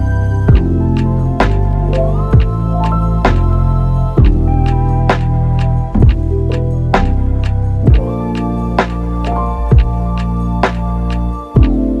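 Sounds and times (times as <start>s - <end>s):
deep bass: 0.0s - 12.0s
drum hits: 6.0s - 6.2s, 7.9s - 8.1s.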